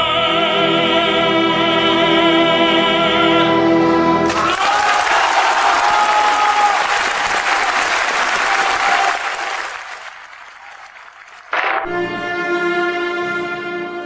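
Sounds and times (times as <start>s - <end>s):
audience applauding: 4.3s - 11.8s.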